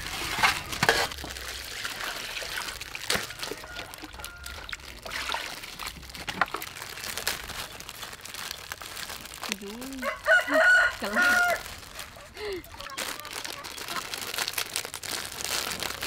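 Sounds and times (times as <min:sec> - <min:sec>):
water splashing in a steel bowl: 0:00.0 - 0:07.6.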